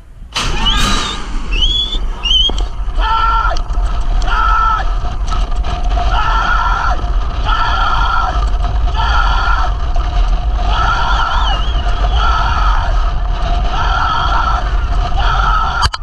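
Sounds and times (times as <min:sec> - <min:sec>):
wind rumbling on microphone: 0:00.0 - 0:16.0
warbling whistle-like tone: 0:00.4 - 0:02.8.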